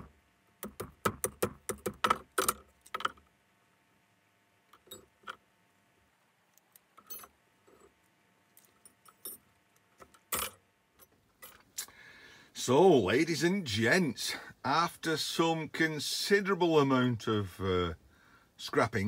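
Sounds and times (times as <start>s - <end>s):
metallic clinks and taps: 4.7s - 5.4s, 6.6s - 7.9s, 8.6s - 11.7s.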